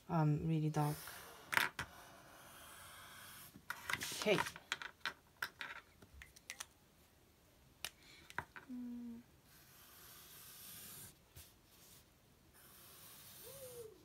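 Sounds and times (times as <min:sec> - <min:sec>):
marker drawing on paper: 0:00.8 - 0:04.5, 0:09.5 - 0:14.0.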